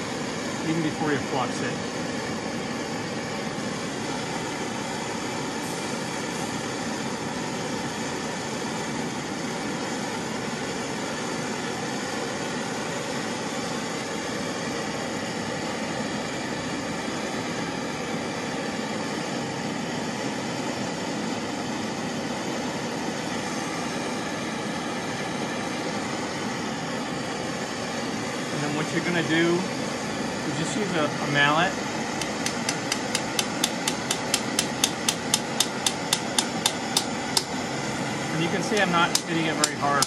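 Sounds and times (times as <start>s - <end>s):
gas torch flame hissing: 0.0s - 40.0s.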